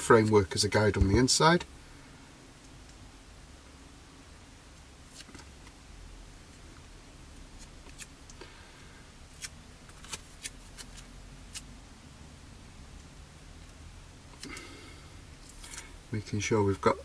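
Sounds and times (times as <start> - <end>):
soft hiss: 0.0 - 17.0
tape and plastic crinkling: 9.3 - 11.7.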